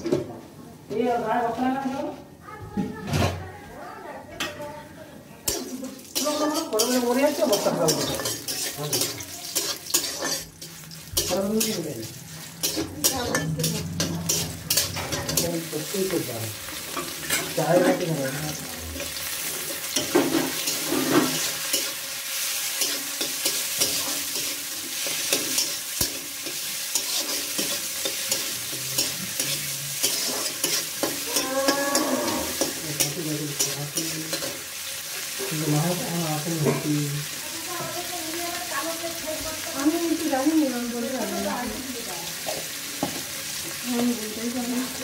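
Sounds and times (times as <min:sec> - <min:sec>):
vegetables sizzling in oil: 0:05.3 - 0:45.0
spatula scraping a wok: 0:05.5 - 0:36.9.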